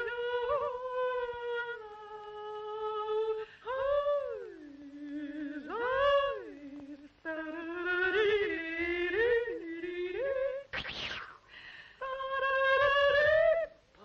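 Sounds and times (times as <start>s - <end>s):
rising noise burst: 10.7s - 11.6s.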